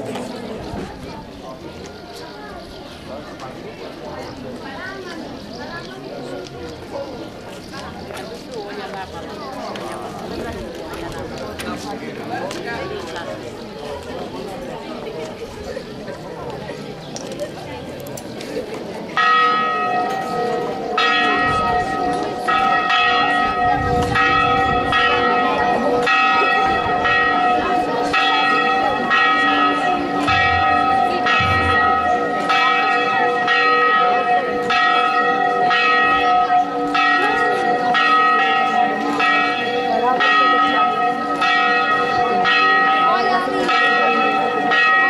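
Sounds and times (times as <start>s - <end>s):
church bells ringing: 19.0s - 45.0s.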